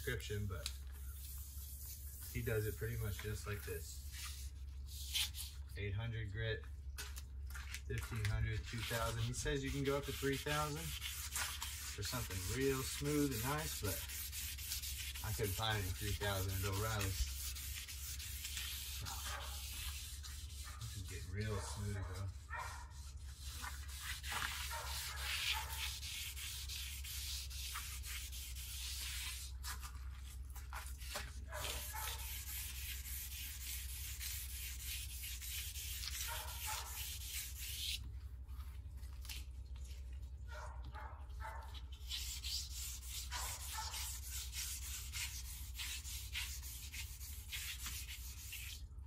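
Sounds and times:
sandpaper rubbing on metal finish: 0:00.0 - 0:05.6, 0:08.1 - 0:38.1, 0:41.5 - 0:48.9.

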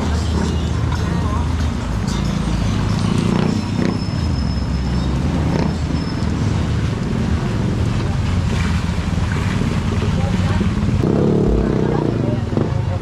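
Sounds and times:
traffic rumble: 0:00.0 - 0:13.0
rain falling on wet street: 0:05.4 - 0:13.0.

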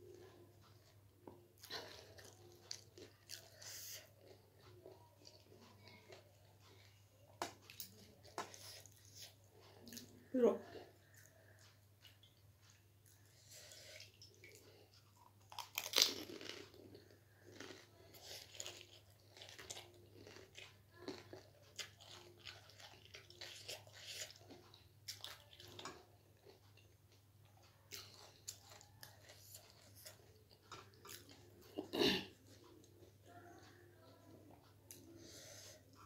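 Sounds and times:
person chewing crunchy snack: 0:11.0 - 0:33.0.

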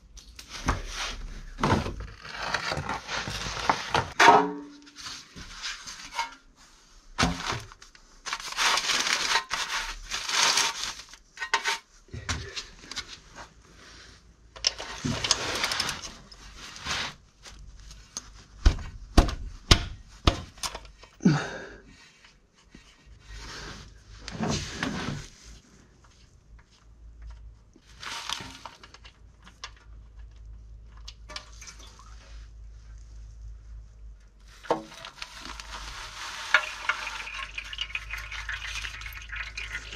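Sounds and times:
metal pan scraping over newspaper: 0:07.2 - 0:11.9, 0:14.9 - 0:17.2, 0:34.6 - 0:39.8.

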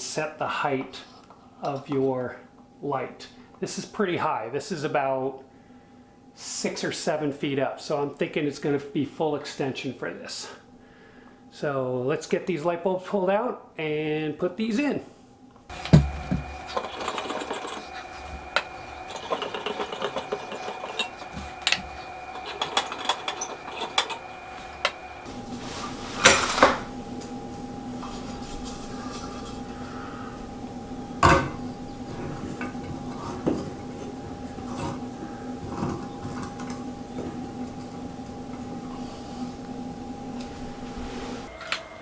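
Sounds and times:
steady hum: 0:13.6 - 0:42.0.

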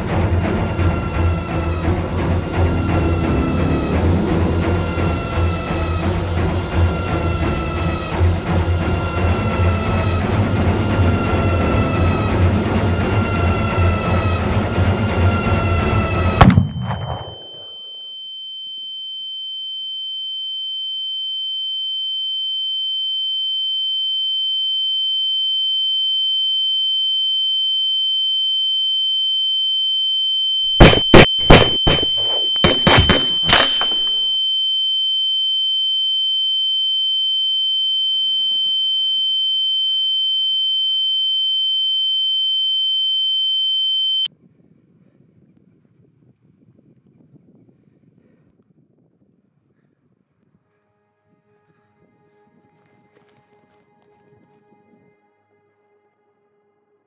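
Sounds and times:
high-pitched ringing tone: 0:02.6 - 0:44.3
loud sharp cracks: 0:30.8 - 0:34.2.

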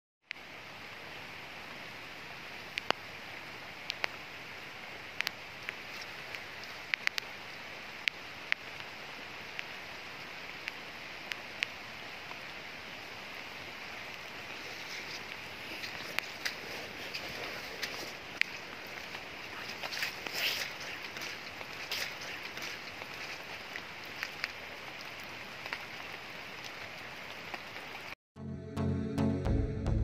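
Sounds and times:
rain falling on foliage: 0:00.3 - 0:28.2
sharp taps of raindrops: 0:02.7 - 0:03.1, 0:03.8 - 0:04.2, 0:05.2 - 0:09.8, 0:10.5 - 0:12.5, 0:14.8 - 0:28.2.

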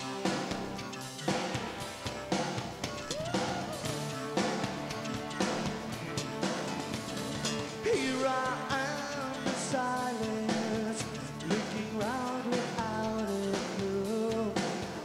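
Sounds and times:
drums: 0:00.0 - 0:15.0
electric guitar: 0:00.0 - 0:15.0
person singing: 0:07.7 - 0:15.0.

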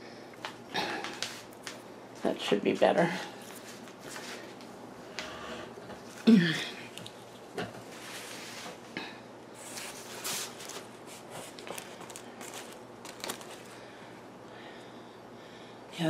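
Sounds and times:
person grunting: 0:06.2 - 0:06.8
paper and plastic crinkling: 0:09.6 - 0:13.9.

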